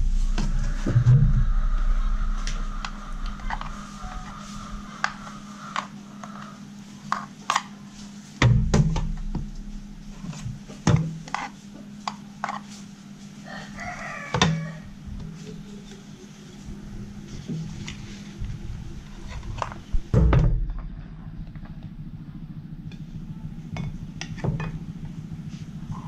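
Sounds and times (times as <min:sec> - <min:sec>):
rooster crowing: 0:00.0 - 0:06.7, 0:13.4 - 0:15.1.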